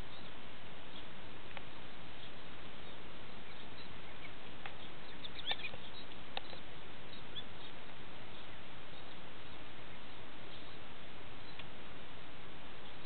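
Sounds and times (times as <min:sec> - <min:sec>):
steady hiss: 0:00.0 - 0:13.0
ducks chirping: 0:01.7 - 0:11.6.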